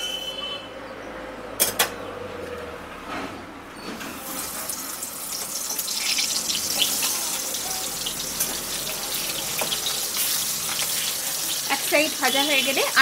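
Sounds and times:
fish sizzling in hot oil: 4.3 - 13.0.

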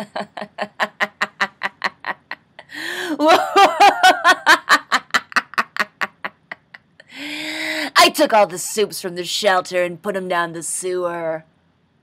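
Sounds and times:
woman laughing hard: 0.0 - 7.1.

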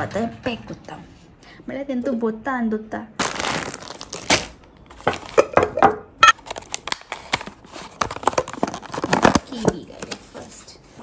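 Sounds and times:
plastic packaging crinkling: 3.2 - 5.6, 6.3 - 10.3.

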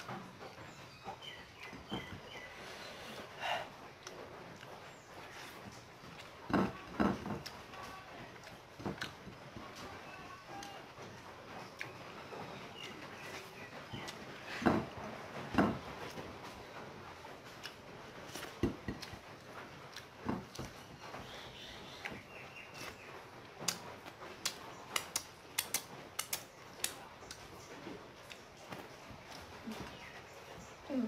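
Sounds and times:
sharp clicks and smacks: 21.9 - 29.5.

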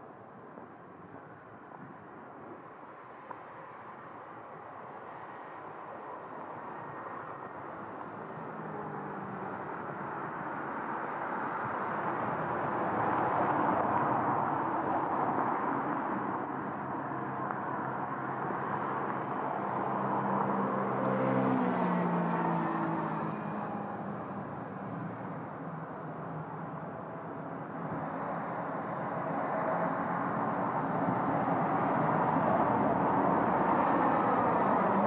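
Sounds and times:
passing traffic: 5.0 - 35.0.

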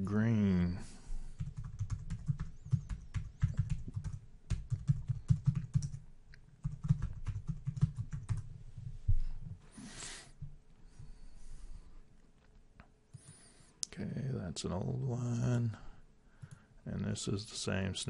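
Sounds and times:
typing on computer keyboard: 1.4 - 6.0, 6.6 - 8.5.

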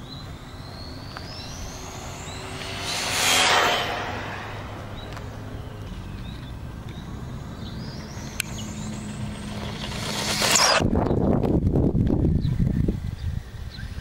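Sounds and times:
rc car electric motor whining: 0.4 - 6.6, 7.3 - 10.9.

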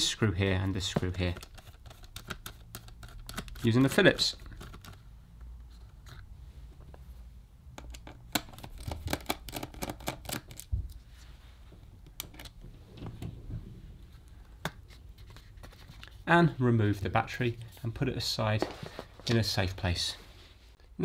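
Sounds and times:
hands handling small parts: 0.8 - 7.1, 17.4 - 19.6.

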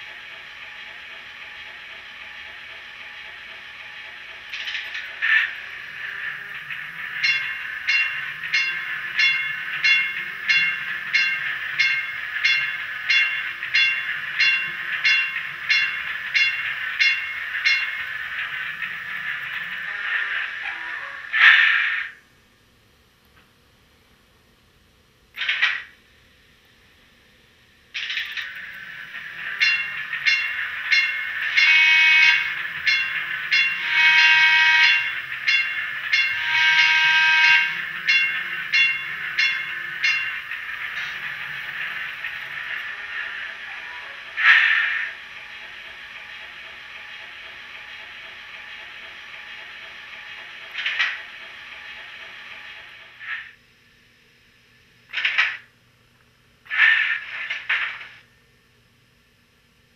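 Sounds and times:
trolley bell through small speaker: 5.8 - 19.8, 28.5 - 42.6
model train horn effect: 29.4 - 40.4.

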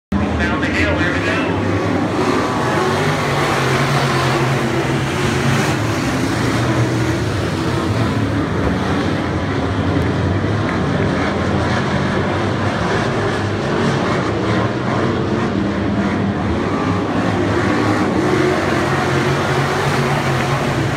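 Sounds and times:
race car engines droning: 0.1 - 20.9.

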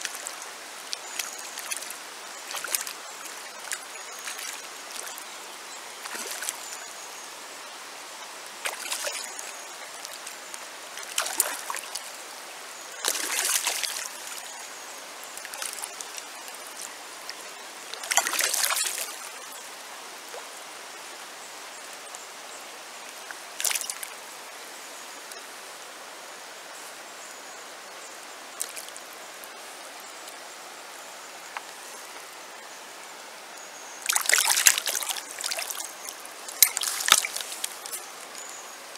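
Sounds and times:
water splashes: 0.0 - 7.0, 8.5 - 19.7, 23.2 - 24.2, 28.5 - 29.5, 33.6 - 38.9
river water over stones: 0.0 - 38.9.

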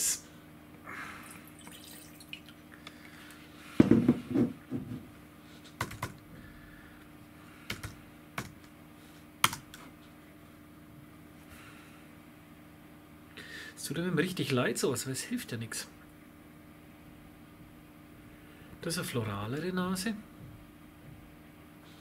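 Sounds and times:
keyboard typing clicks: 7.7 - 8.6.

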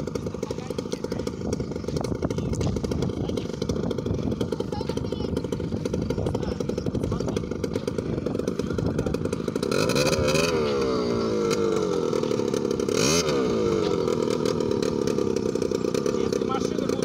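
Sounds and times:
quad bike engine idling and revving: 0.0 - 17.0.

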